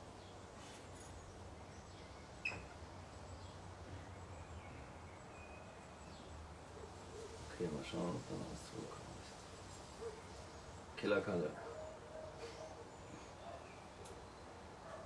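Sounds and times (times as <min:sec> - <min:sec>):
faint bird chirps: 0:00.0 - 0:07.7.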